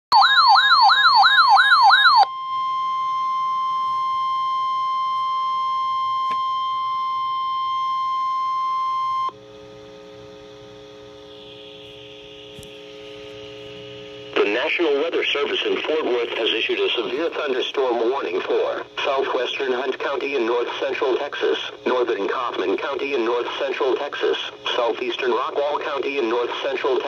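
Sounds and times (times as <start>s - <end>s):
warbling siren tone: 0.1s - 9.3s, 11.2s - 13.6s
low buzz of several tones: 2.2s - 20.6s
steady warning alert tone: 11.2s - 18.2s.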